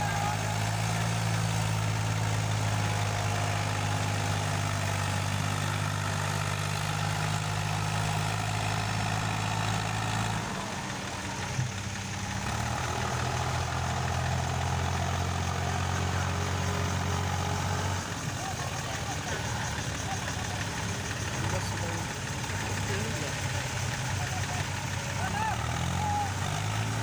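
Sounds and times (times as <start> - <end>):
tractor diesel engine running: 0.0 - 27.0.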